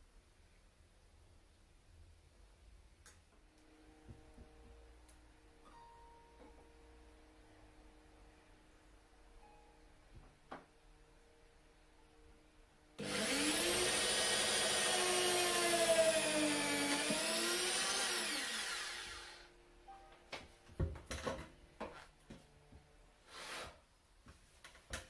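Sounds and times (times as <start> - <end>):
electric drill running: 13.0 - 19.5.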